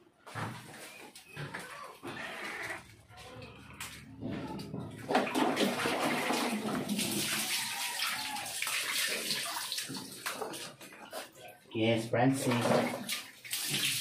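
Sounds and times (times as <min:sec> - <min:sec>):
water running and splashing: 0:04.9 - 0:11.4, 0:12.4 - 0:14.0.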